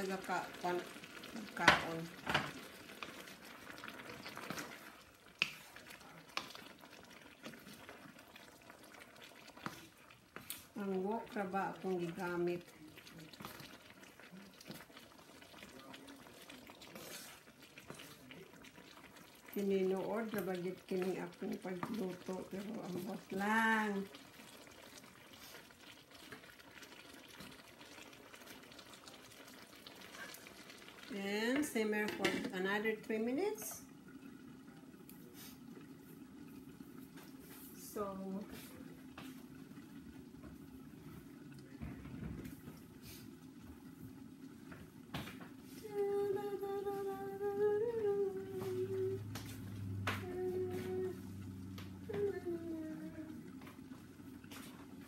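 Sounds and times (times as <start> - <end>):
vegetables cooking in a wok: 0.0 - 34.4, 37.4 - 38.8, 48.2 - 55.0
wooden spatula scraping: 4.2 - 6.6, 16.8 - 18.2.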